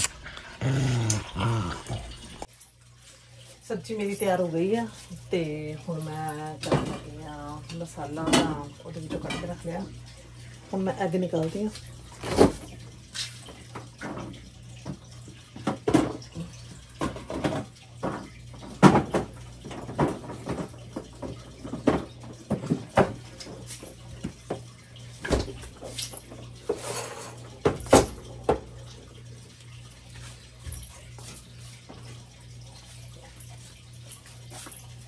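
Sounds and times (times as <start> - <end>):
kitchen items knocking and clattering: 6.5 - 9.7, 13.8 - 28.8.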